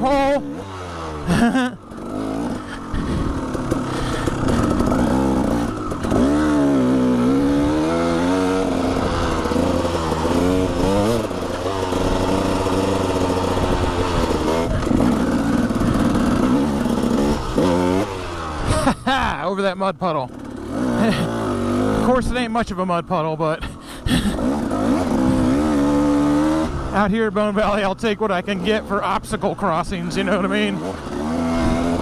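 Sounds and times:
two-stroke dirt bike engine: 0.0 - 32.0.

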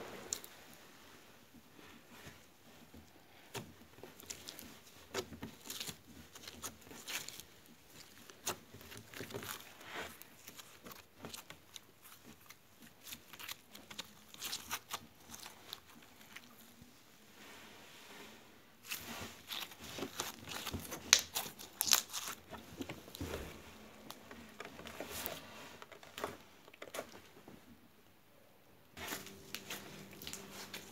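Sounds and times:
slime clicking and crackling: 4.2 - 16.6, 18.8 - 23.2, 29.2 - 30.9.

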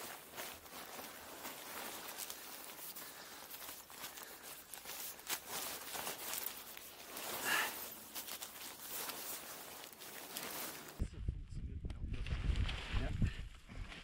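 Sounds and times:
boots crunching on snow and rock: 0.0 - 11.0
fabric rustling: 0.0 - 11.0.

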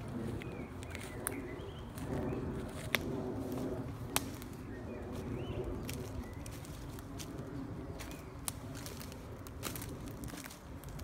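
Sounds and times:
footsteps on forest floor: 0.0 - 11.0
dry twigs snapping: 2.7 - 4.6, 8.0 - 11.0.

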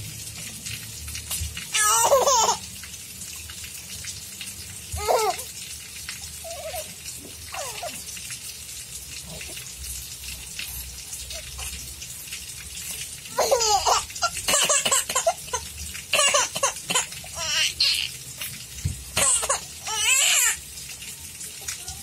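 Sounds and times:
baby giggling: 1.8 - 2.6, 13.3 - 15.6, 16.2 - 18.1
baby cooing: 5.0 - 5.5, 6.4 - 6.9, 7.5 - 8.0, 13.3 - 14.8.

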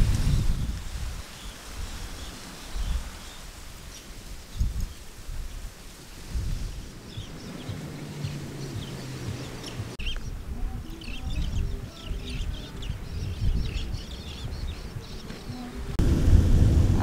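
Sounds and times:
wind rumble on microphone: 0.0 - 17.0
birds chirping and calling: 6.4 - 16.0.

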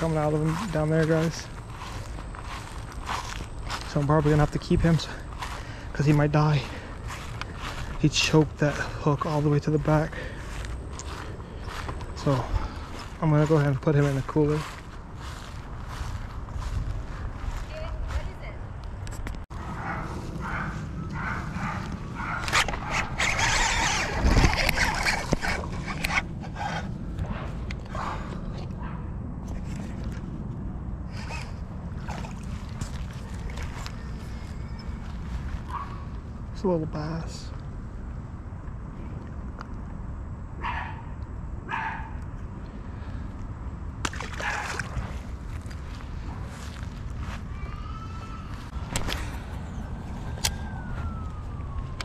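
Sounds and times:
steady low rumble: 0.0 - 23.2, 24.0 - 40.6, 41.2 - 52.0
dog barking: 19.8 - 23.0, 35.7 - 36.0, 40.6 - 41.1, 41.7 - 42.2
fish splashing into water: 44.0 - 45.1.

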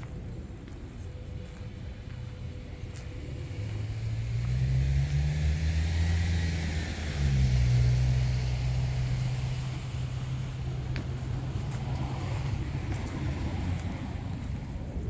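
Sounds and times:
vehicle engine drone: 0.0 - 15.0
road hiss: 1.0 - 14.9.

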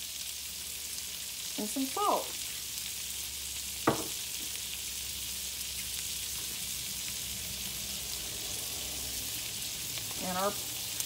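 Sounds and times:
vegetables sizzling in a skillet: 0.0 - 11.0
sharp knock: 3.9 - 4.1.

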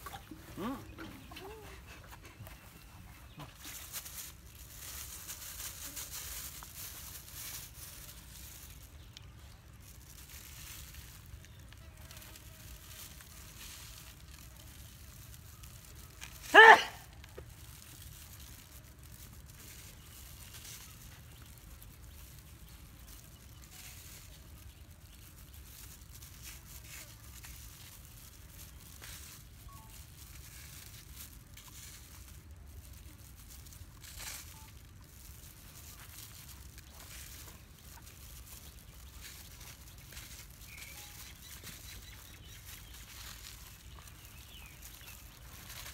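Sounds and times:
plastic glove crinkling: 0.0 - 45.9
animal call: 16.5 - 17.1.

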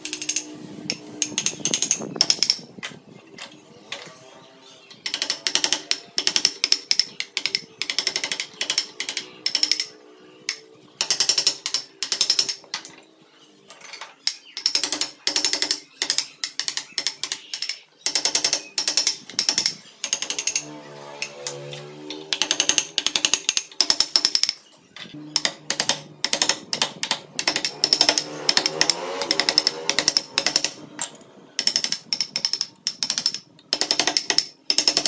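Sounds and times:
chisel cutting wood: 25.4 - 30.8.

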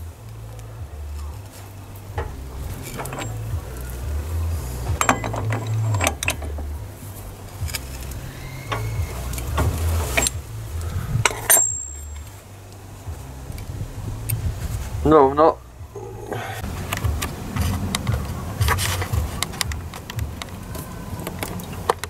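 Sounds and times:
low rumble: 0.0 - 22.0
wrench clicking and knocking on metal: 4.8 - 6.8.

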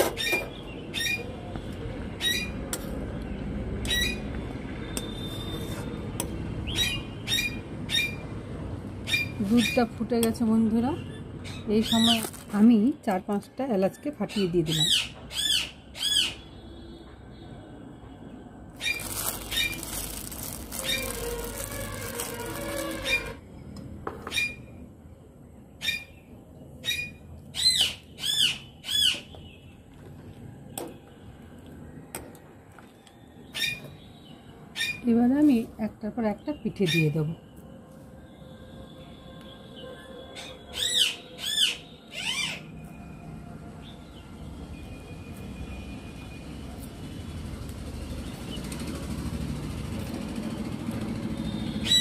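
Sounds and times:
bird calling harshly: 18.8 - 23.4.

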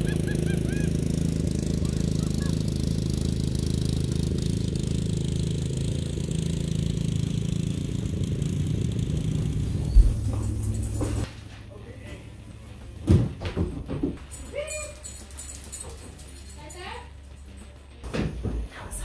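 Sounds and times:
riding lawn mower engine running: 0.0 - 13.1.

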